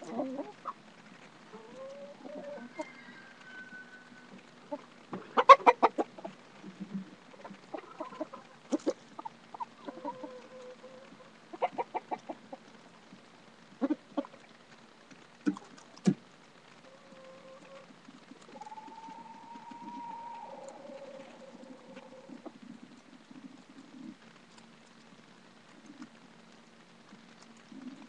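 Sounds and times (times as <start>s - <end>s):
hens clucking: 0.0s - 0.8s, 1.5s - 12.6s, 13.8s - 14.4s, 16.9s - 24.2s.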